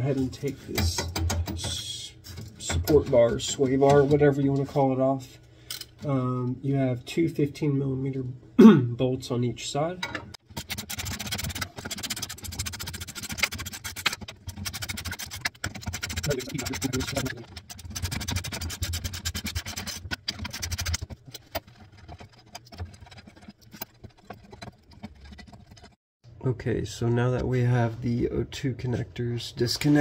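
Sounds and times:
tool scraping: 10.3s - 26.0s.

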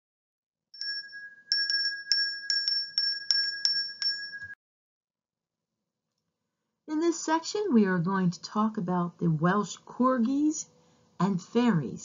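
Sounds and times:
tinkling chime strikes: 0.8s - 4.6s.

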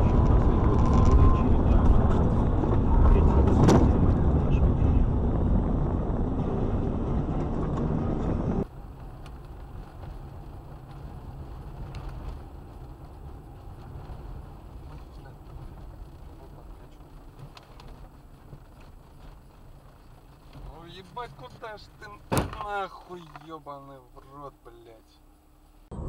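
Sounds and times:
engine and road rumble: 0.0s - 26.0s
low engine and tyre hum: 0.0s - 26.0s.

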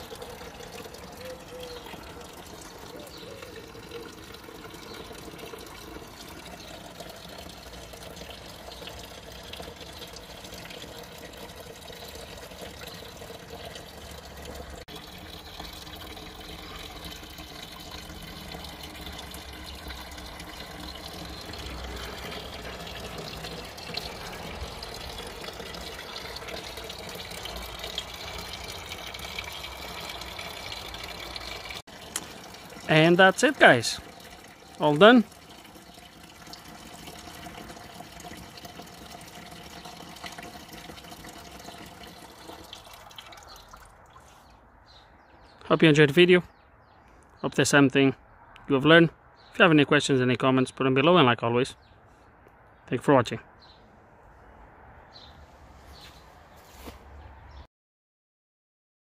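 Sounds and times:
fountain water trickling: 0.0s - 46.9s.

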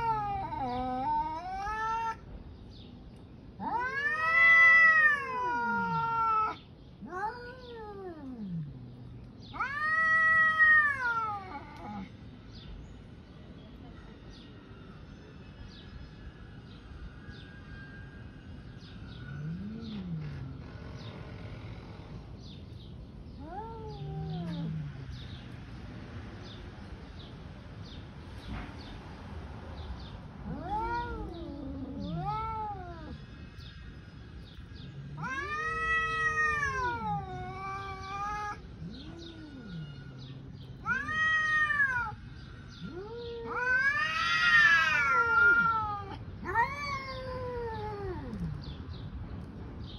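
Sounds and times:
cats growling: 0.0s - 2.2s, 3.5s - 12.2s, 19.3s - 22.3s, 23.3s - 25.6s, 30.1s - 49.0s
cats yowling: 0.0s - 2.4s, 3.5s - 12.2s, 19.4s - 20.7s, 23.3s - 25.6s, 30.1s - 48.8s.

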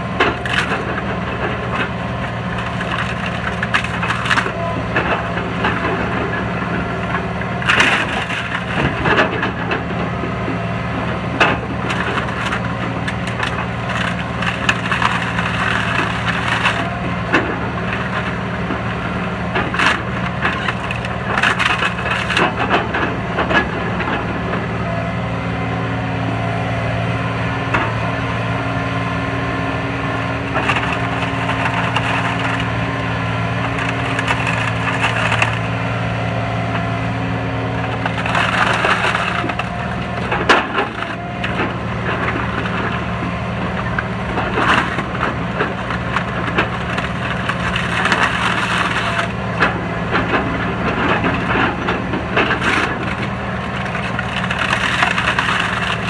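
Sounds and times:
wood cracking and splintering: 0.0s - 24.9s, 26.4s - 56.0s
excavator engine hum: 0.0s - 56.0s.

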